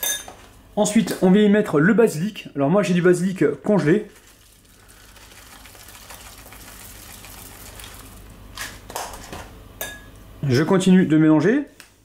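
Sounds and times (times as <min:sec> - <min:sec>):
fine rustle of falling flakes: 0:04.1 - 0:08.3.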